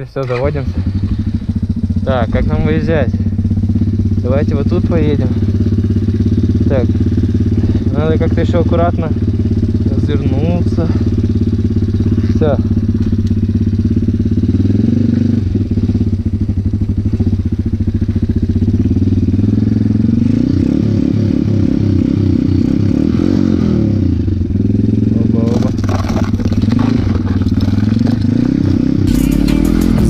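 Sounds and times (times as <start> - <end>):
motorbike engine revving: 0.0 - 30.0
crackling clatter: 25.4 - 28.8.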